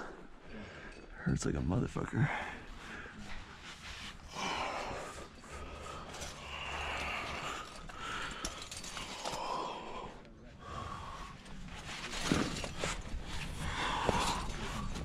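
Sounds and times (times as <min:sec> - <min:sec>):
person breathing hard: 0:02.3 - 0:11.9, 0:13.2 - 0:15.0.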